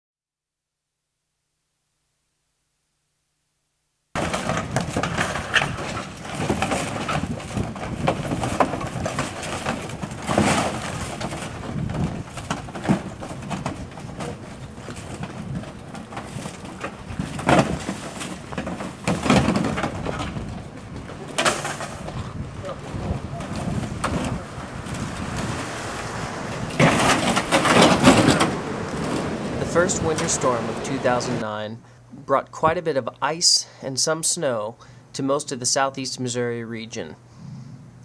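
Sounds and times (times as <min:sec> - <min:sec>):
metal clanks: 0:04.2 - 0:25.2, 0:26.7 - 0:29.3
sheet metal scraping and rattling: 0:04.2 - 0:31.4.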